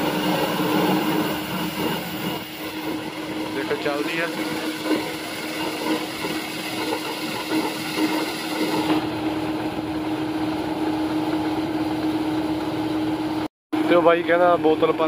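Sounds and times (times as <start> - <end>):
hiss: 0.0 - 9.0
farm machinery engines running: 0.0 - 15.0.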